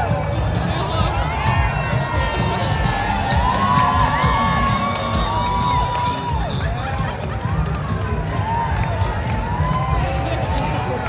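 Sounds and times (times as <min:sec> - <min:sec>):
crowd cheering and whooping: 0:00.0 - 0:11.0
music: 0:00.0 - 0:11.0.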